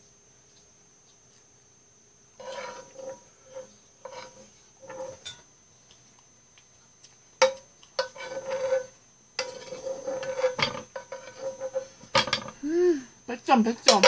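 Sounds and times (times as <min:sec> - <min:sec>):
faint ringing from pan: 0:02.4 - 0:05.5
metal spoon scraping frying pan: 0:02.4 - 0:05.5, 0:07.4 - 0:12.6.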